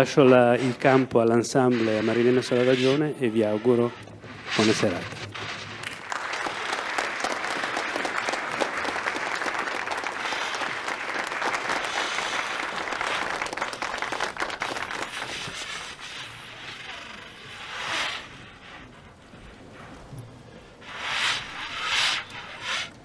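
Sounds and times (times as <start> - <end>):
audience applauding: 5.8 - 15.8.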